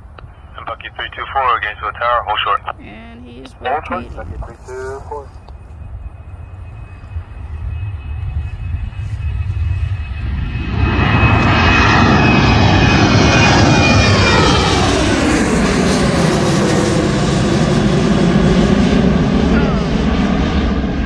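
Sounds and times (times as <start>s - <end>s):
high steady whine: 0.0s - 21.0s
jet engines roaring overhead: 0.0s - 21.0s.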